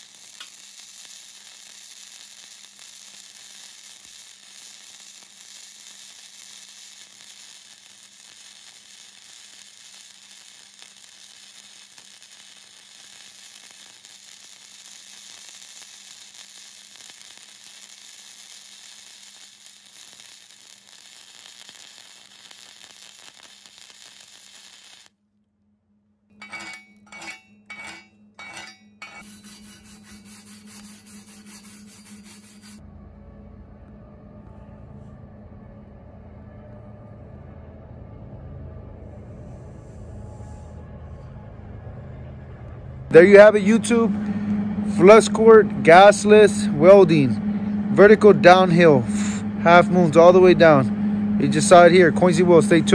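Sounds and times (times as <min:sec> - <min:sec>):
welding arc: 0:00.0 - 0:25.1, 0:26.4 - 0:32.8, 0:43.1 - 0:52.9
wire brush scrubbing metal: 0:26.4 - 0:32.8.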